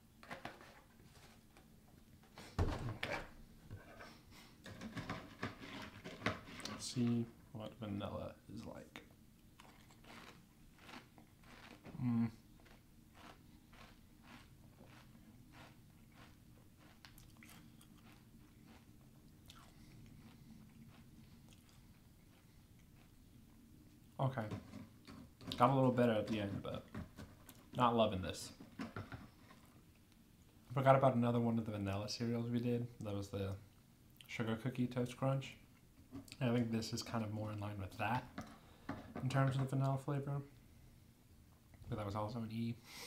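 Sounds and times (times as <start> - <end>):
cereal crunching while chewed: 9.6 - 23.6.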